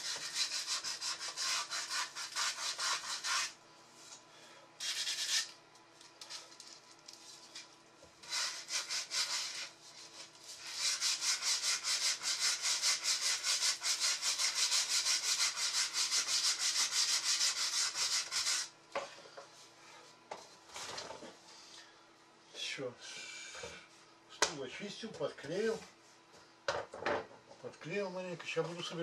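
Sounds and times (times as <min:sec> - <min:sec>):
wood being sanded by hand: 0:00.0 - 0:03.6, 0:08.2 - 0:09.8, 0:10.5 - 0:18.7.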